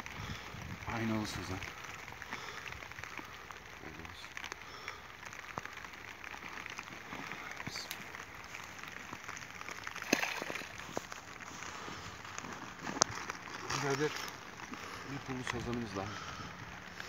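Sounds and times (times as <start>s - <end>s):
dry reeds crackling and rustling: 0.0s - 17.0s
fish splashing into water: 9.7s - 10.9s.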